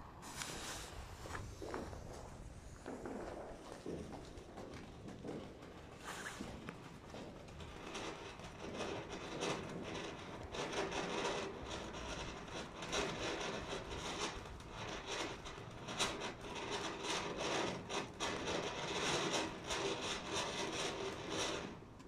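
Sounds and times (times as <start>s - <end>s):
firework fountains hissing: 0.0s - 4.8s, 5.9s - 7.3s
firework crackles: 0.0s - 22.0s.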